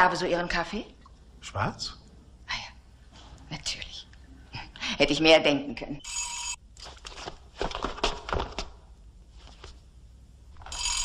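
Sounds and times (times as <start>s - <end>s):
footsteps on hard floor: 6.8s - 8.8s.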